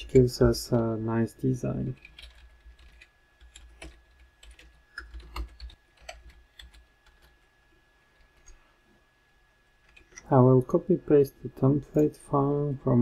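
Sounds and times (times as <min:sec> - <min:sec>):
typing on computer keyboard: 0:02.0 - 0:07.4.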